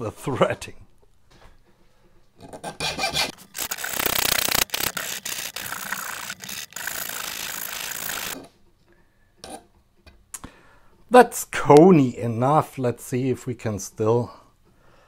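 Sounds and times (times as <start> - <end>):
hand file rasping on metal rod: 2.8 - 3.4.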